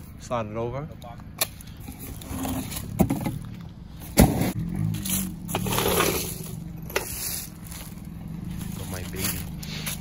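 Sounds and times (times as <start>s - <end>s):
floor jack rolling on pavement: 1.8s - 7.9s.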